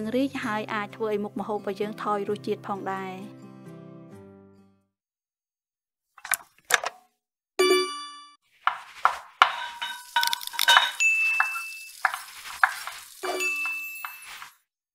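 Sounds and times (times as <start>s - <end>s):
bell-like ding: 7.6s - 8.4s, 10.8s - 11.9s, 13.2s - 14.5s
pots pans and cutlery clanging: 8.7s - 14.6s.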